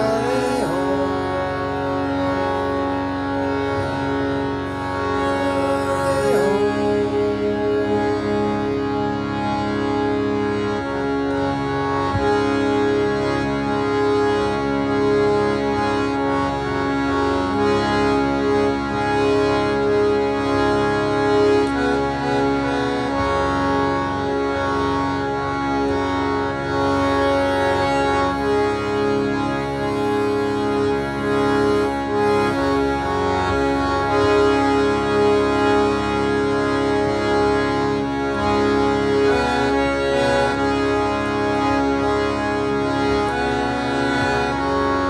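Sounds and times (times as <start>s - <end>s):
harmonium melody over drone: 0.0s - 45.0s.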